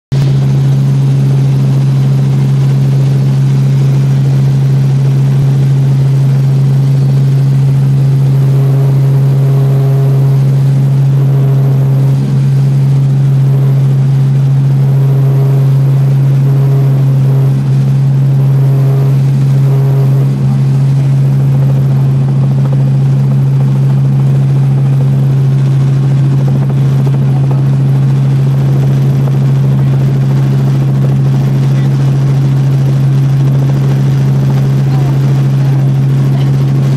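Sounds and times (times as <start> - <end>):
helicopter engine and rotor drone: 0.1 - 36.9.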